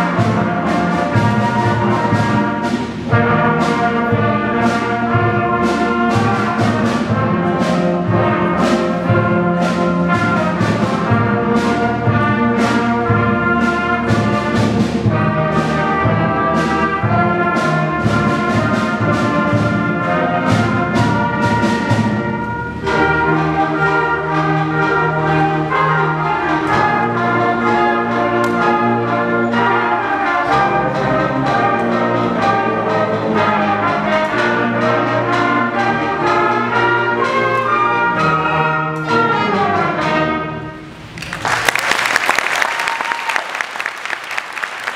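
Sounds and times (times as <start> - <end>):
concert band playing: 0.0 - 44.9
audience applause: 41.2 - 44.9.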